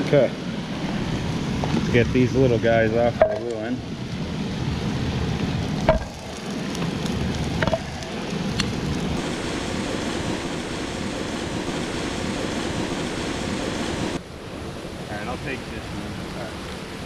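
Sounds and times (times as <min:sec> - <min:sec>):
fish sizzling in hot oil: 0:04.0 - 0:14.1.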